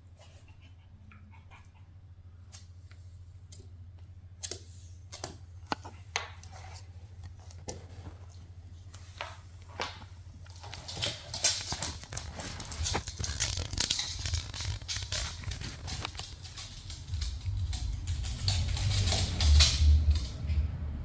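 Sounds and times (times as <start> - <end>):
dog claws scrabbling on wooden floor: 4.4 - 20.5.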